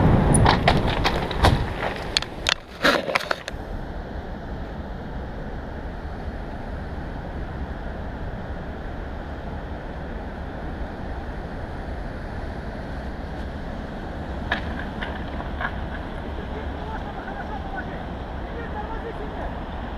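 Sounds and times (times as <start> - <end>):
surf breaking on pebbles: 0.0 - 3.5, 14.3 - 17.8
wind buffeting microphone: 0.0 - 19.9.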